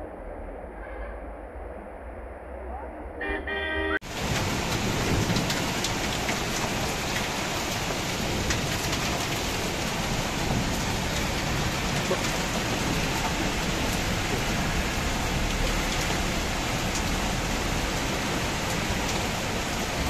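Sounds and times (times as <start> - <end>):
floodwater rushing: 4.0 - 20.0
rain pattering: 4.0 - 20.0.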